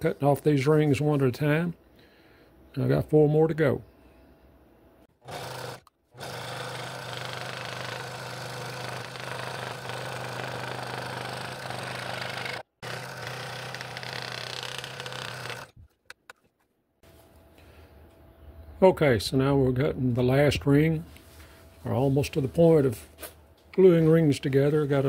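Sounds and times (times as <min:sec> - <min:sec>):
scroll saw cutting wood: 0:05.2 - 0:16.2.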